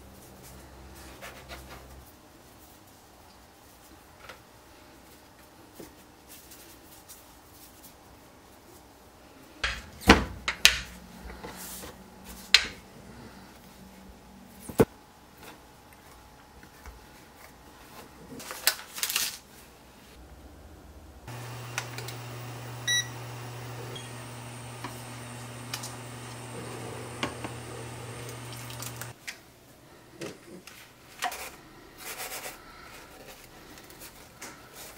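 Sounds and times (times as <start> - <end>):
cooktop low hum: 9.0 - 34.9
water boiling in a pan: 27.7 - 29.1.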